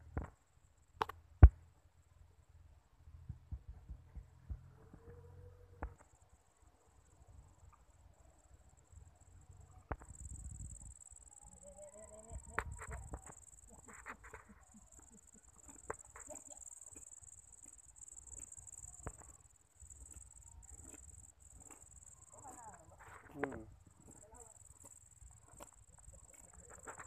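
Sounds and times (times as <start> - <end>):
insects trilling: 7.0 - 27.0.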